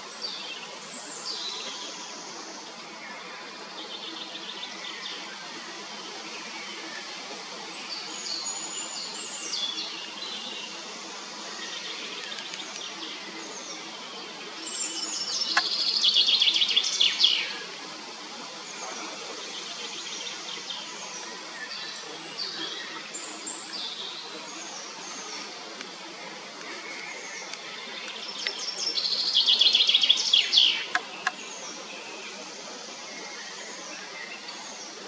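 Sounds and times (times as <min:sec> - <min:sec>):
songbirds singing and calling: 0:00.0 - 0:35.0
steady background hiss: 0:00.0 - 0:35.0
bird song of rapid notes: 0:07.8 - 0:17.7, 0:18.8 - 0:35.0.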